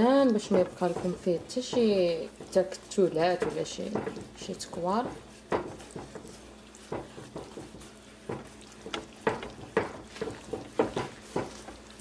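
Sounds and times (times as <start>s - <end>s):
faint sizzle of oil: 0.0s - 12.0s
whisk swishing and scraping in pan: 0.0s - 12.0s.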